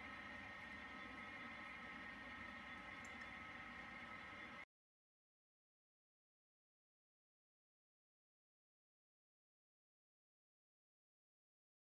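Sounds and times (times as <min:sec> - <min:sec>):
faint hiss and hum: 0:00.0 - 0:04.6.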